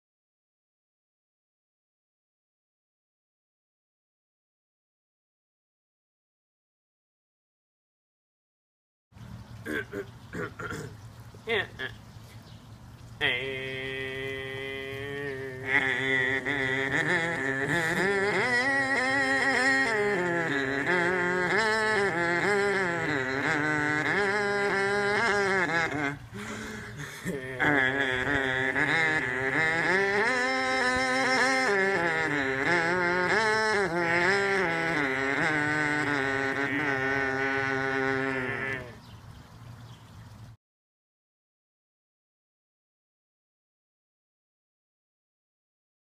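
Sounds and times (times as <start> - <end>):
voice chanting pulsed melody: 13.2 - 39.0
voices droning: 13.2 - 39.0.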